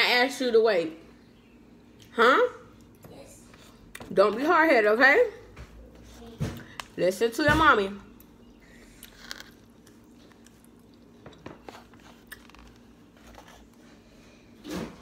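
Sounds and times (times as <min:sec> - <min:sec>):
chewing: 0:08.8 - 0:13.8.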